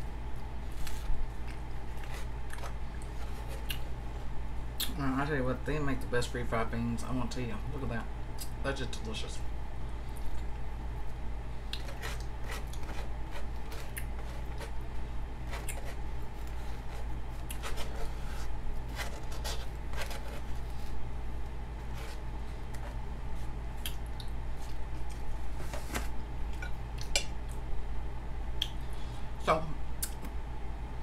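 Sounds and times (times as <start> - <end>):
steady low hum: 0.0 - 31.0
wet chewing and mouth smacks: 1.4 - 3.9, 11.7 - 14.7, 23.8 - 25.2.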